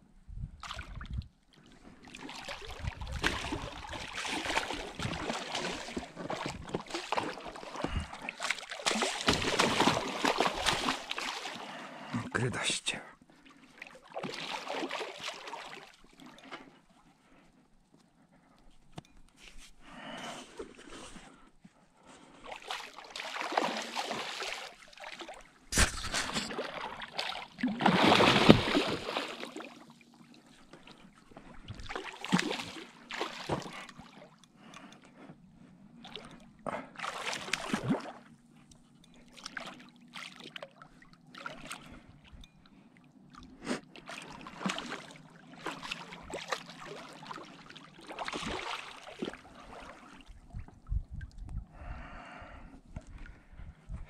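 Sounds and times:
water splashing and sloshing: 0.4s - 54.0s.

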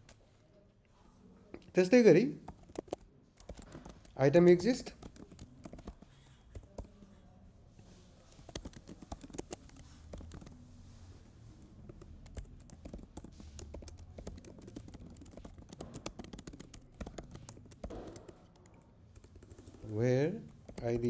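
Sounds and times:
computer keyboard typing: 1.7s - 7.1s, 8.3s - 21.0s.

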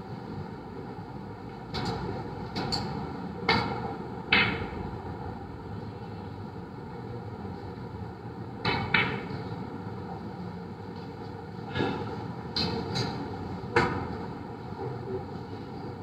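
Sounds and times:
steady background hum: 0.0s - 16.0s
snooker balls colliding: 3.4s - 4.9s, 8.6s - 9.6s
cue striking ball click: 3.5s - 4.8s, 8.6s - 9.4s
sharp knocks: 3.5s - 4.8s.

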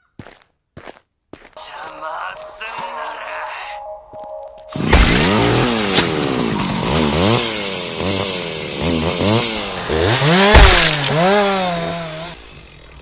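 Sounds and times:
chainsaw revving: 5.1s - 13.0s.

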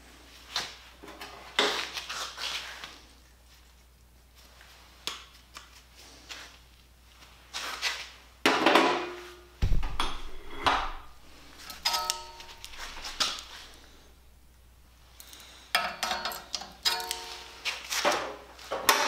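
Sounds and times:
metal clanks and knocks: 8.5s - 13.4s, 15.8s - 17.4s
heavy thump: 9.6s - 11.3s
ringing struck steel: 11.8s - 12.9s, 16.3s - 17.6s.

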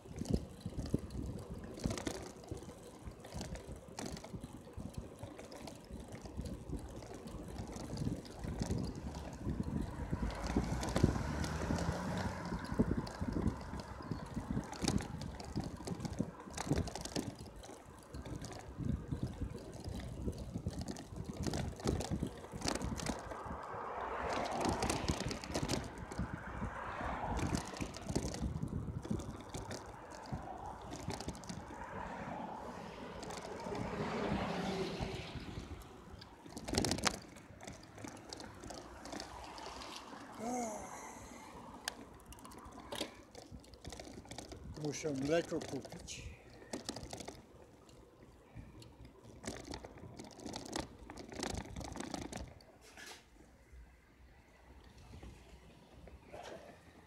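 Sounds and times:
wind buffeting microphone: 0.0s - 39.6s
truck engine hum: 0.0s - 52.0s
bicycle riding noise: 0.0s - 57.0s
knocks and rattles: 35.3s - 39.4s, 49.3s - 52.6s.

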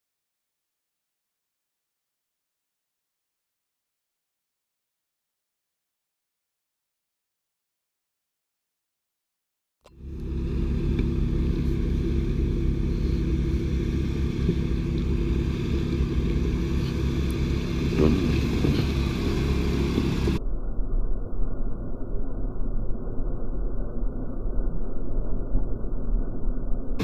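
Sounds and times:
car engine at low revs: 9.9s - 20.4s.

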